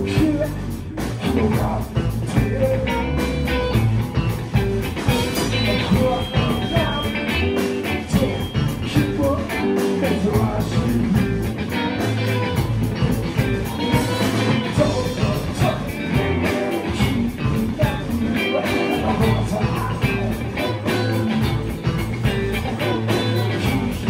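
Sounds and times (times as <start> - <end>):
person singing: 0.0 - 3.3, 5.1 - 11.5, 13.6 - 21.6, 22.4 - 24.0
bass guitar: 0.0 - 24.0
distorted electric guitars: 0.0 - 24.0
drums with steady beat: 0.0 - 24.0.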